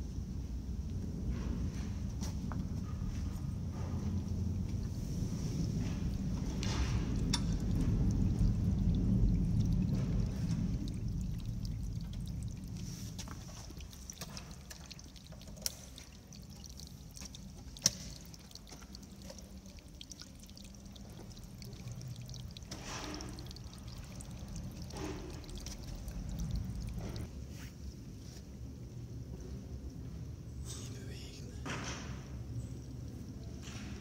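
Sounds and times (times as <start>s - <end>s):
steady low rumble: 0.0s - 27.4s
water pouring from a pipe into sand: 3.9s - 27.3s.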